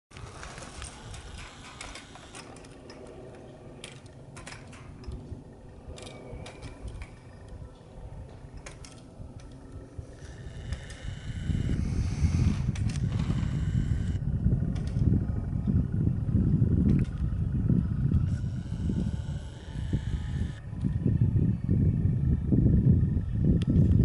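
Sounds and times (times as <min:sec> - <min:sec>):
wind rumbling on microphone: 0:00.1 - 0:24.0
ski lift cable clicking: 0:00.2 - 0:05.3, 0:08.5 - 0:11.8, 0:12.5 - 0:15.1, 0:16.8 - 0:17.3.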